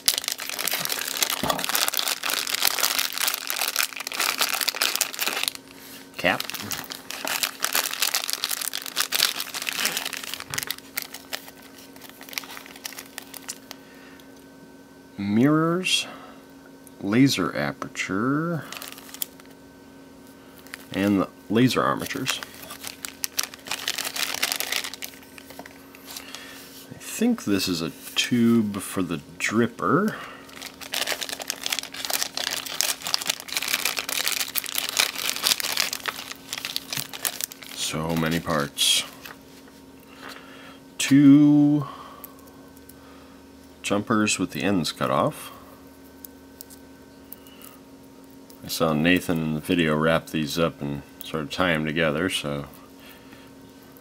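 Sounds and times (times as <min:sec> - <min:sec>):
plastic bags crinkling: 0:00.0 - 0:13.8, 0:18.6 - 0:19.5, 0:20.6 - 0:21.1, 0:22.0 - 0:26.4, 0:30.5 - 0:39.5.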